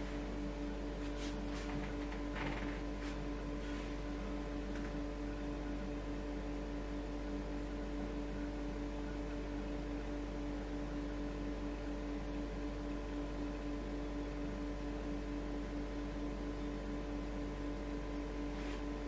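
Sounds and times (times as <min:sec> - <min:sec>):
steady electrical hum: 0:00.0 - 0:19.0
faint soft rustles: 0:01.0 - 0:04.1.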